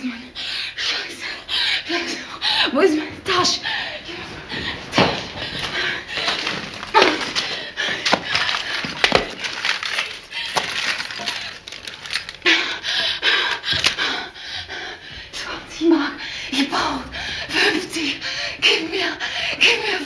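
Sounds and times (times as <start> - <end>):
objects clinking and crashing: 4.0 - 12.6
knocks and thuds of struggle: 4.1 - 9.6.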